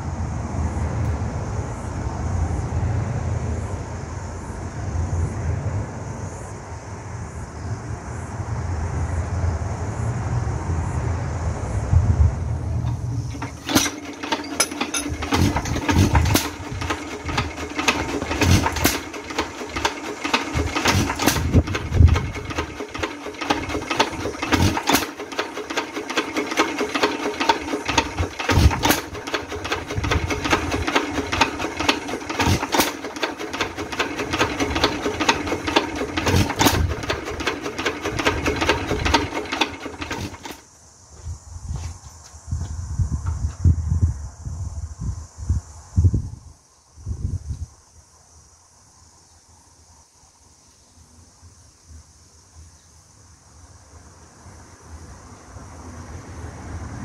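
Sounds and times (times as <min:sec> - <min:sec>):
engine valve gear clatter: 0:12.8 - 0:40.6
heavy engine firing knock: 0:12.8 - 0:40.6.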